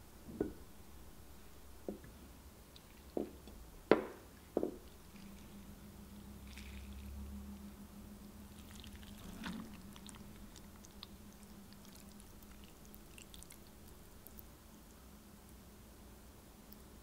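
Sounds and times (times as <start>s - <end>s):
low steady hum: 0.0s - 17.0s
wet squeezing sounds: 6.4s - 7.3s, 8.5s - 14.9s.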